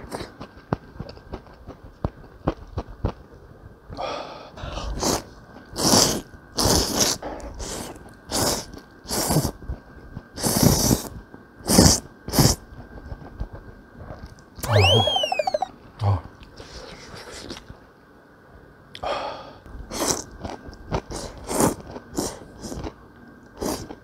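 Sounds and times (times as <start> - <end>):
person slurping noodles: 4.8 - 9.6, 10.4 - 12.6, 19.9 - 20.3, 21.0 - 22.9, 23.6 - 24.0.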